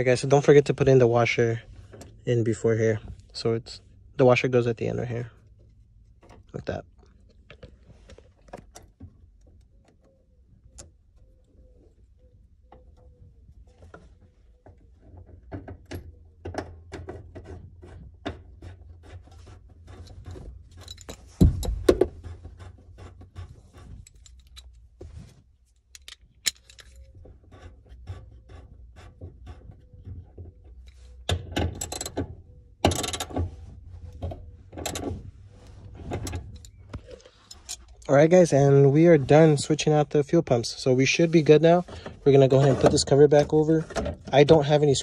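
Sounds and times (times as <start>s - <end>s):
rustling scraping handling noise: 16.8s - 32.1s, 33.0s - 45.0s
metal nuts and washers clinking: 20.1s - 21.9s, 23.9s - 24.8s, 25.8s - 27.2s.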